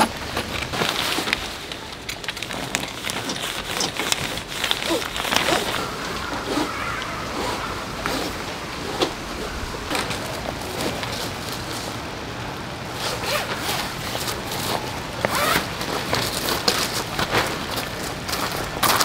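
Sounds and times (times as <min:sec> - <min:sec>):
nylon fabric rustling: 0:00.0 - 0:12.2, 0:12.9 - 0:18.7
zipper being pulled: 0:02.5 - 0:05.8, 0:07.3 - 0:10.1, 0:13.0 - 0:16.6.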